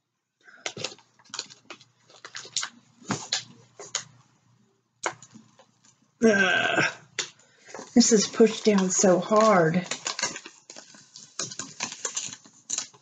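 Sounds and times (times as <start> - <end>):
paper crackling as it peels off: 8.2 - 13.0.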